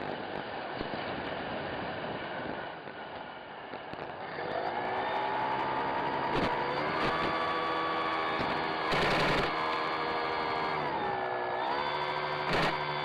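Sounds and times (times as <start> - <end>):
model plane motor whine: 4.0 - 13.0.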